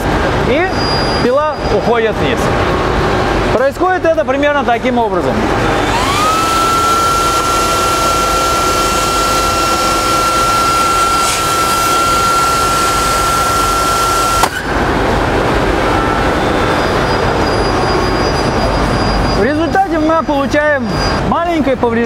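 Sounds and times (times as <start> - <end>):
table saw whining: 5.5 - 15.0.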